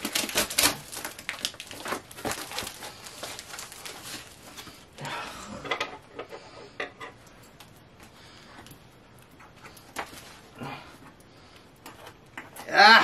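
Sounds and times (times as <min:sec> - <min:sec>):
packing tape ripping off: 0:00.0 - 0:04.8
cardboard rustling: 0:00.0 - 0:04.9.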